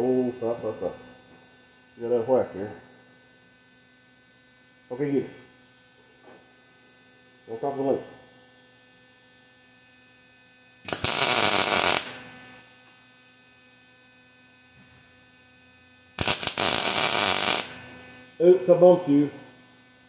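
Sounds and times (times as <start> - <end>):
steady electrical hum: 0.0 - 20.0
arc welder crackling: 10.8 - 12.6, 16.2 - 18.2.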